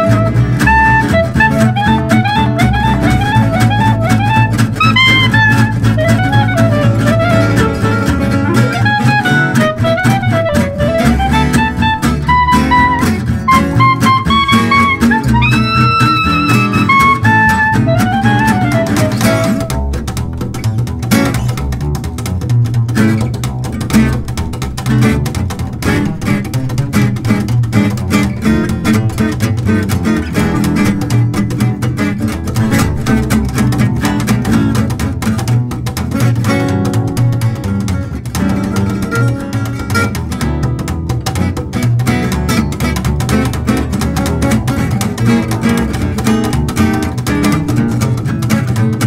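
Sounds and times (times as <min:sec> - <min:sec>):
clarinet lead line: 0:00.0 - 0:20.0, 0:38.0 - 0:40.2
acoustic guitars strumming: 0:00.0 - 0:49.0
upright double bass: 0:00.0 - 0:49.0.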